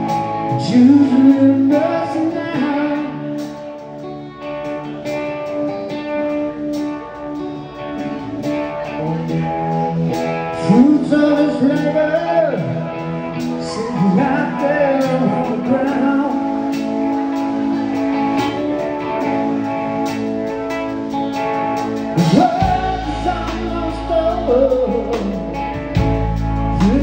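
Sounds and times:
man singing: 0:00.0 - 0:04.0, 0:09.0 - 0:19.2, 0:22.1 - 0:27.0
drums: 0:00.0 - 0:27.0
electric guitar: 0:00.0 - 0:27.0.

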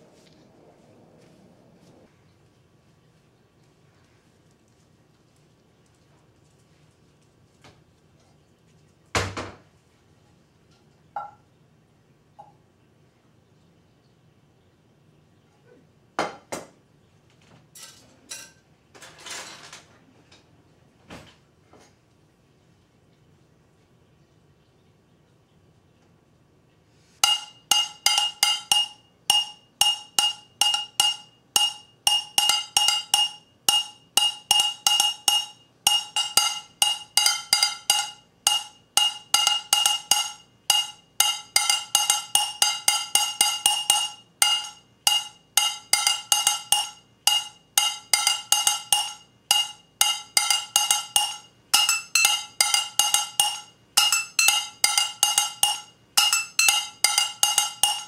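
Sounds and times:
metal pan struck: 0:27.2 - 0:58.0.

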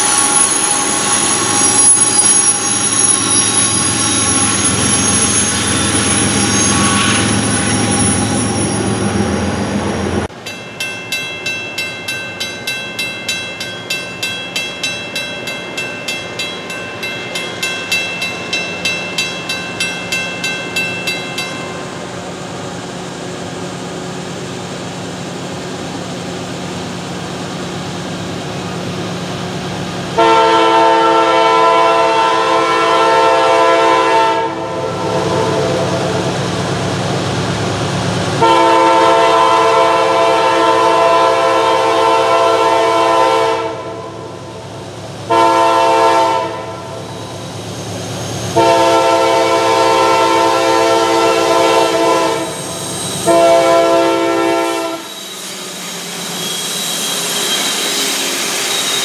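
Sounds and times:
approaching train drone: 0:00.0 - 0:59.0
diesel locomotive engine drone: 0:00.0 - 0:59.0
bell ringing: 0:10.4 - 0:22.2.

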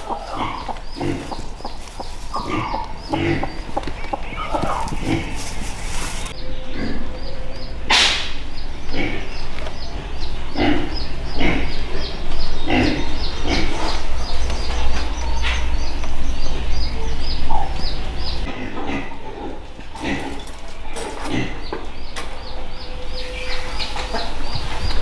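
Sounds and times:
ducks quacking: 0:00.0 - 0:07.2, 0:07.9 - 0:14.8.

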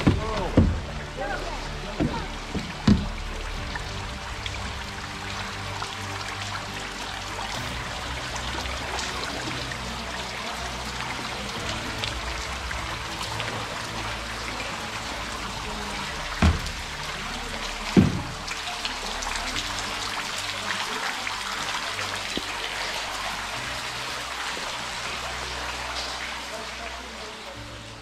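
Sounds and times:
heavy thuds: 0:00.0 - 0:01.0, 0:16.4 - 0:17.0
water drops plinking: 0:05.4 - 0:26.6.

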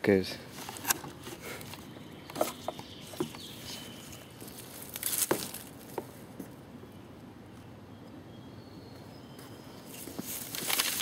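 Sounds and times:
strap rustling: 0:10.0 - 0:11.0.

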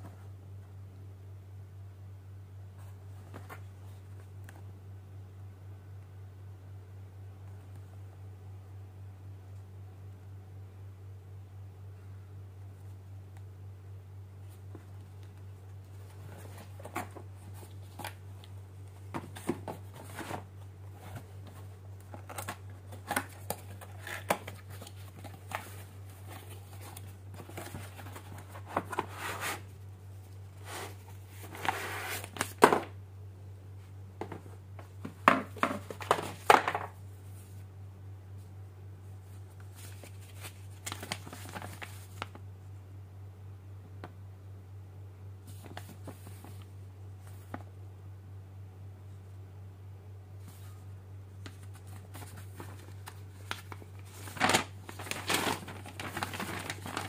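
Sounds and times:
steady low hum: 0:00.0 - 0:57.0
cardboard packaging rustling: 0:15.9 - 0:29.7, 0:30.6 - 0:33.0, 0:34.2 - 0:37.0, 0:39.7 - 0:42.4, 0:51.4 - 0:57.0
paper sheet unfolding: 0:51.5 - 0:57.0.

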